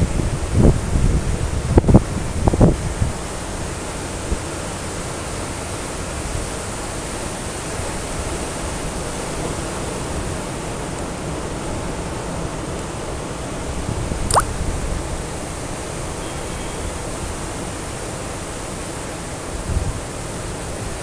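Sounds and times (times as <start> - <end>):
wind rumble on microphone: 0.0 - 3.5
wind: 0.0 - 21.0.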